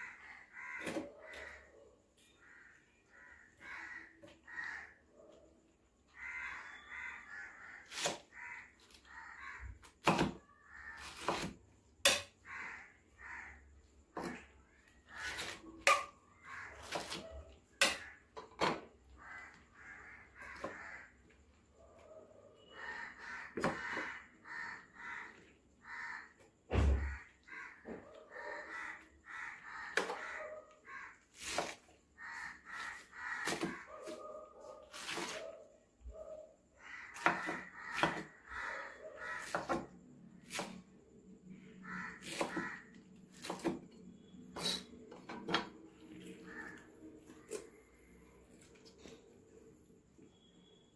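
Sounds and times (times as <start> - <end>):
knife chopping on wooden board: 10.0 - 10.4, 11.0 - 12.3, 16.8 - 17.2, 31.4 - 31.8, 33.4 - 34.2, 34.9 - 35.4, 37.2 - 38.3, 39.4 - 40.8, 42.2 - 43.9.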